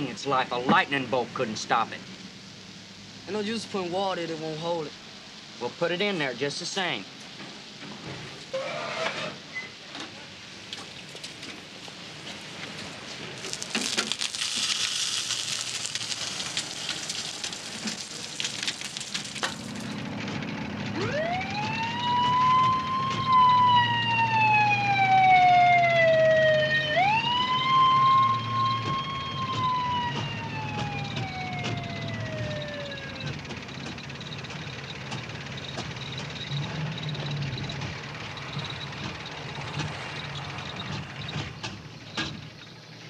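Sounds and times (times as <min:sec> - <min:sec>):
car engine droning: 0:15.9 - 0:43.0
police siren wailing: 0:20.5 - 0:41.2.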